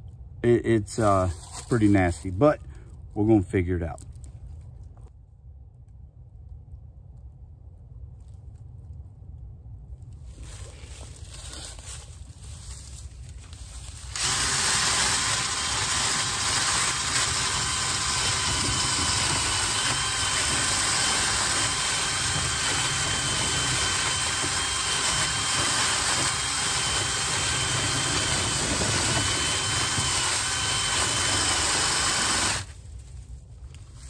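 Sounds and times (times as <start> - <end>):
cordless drill whining: 14.1 - 32.7.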